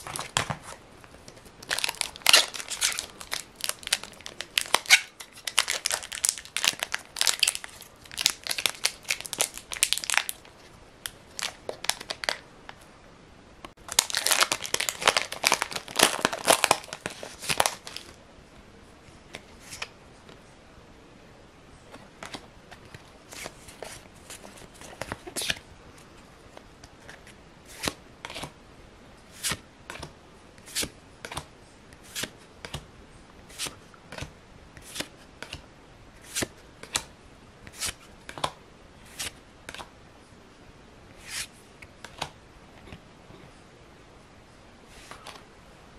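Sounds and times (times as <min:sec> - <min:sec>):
wrappers crinkling and tearing: 0:01.6 - 0:10.4, 0:13.9 - 0:18.2.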